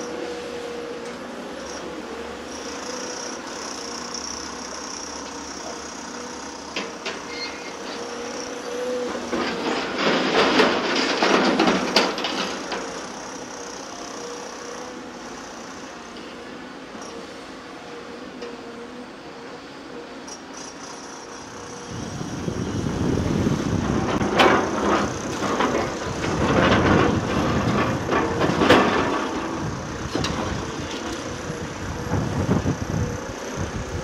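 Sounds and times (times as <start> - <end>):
excavator running: 0.0 - 34.0
loud rattling clatter: 9.3 - 13.1, 23.4 - 33.1.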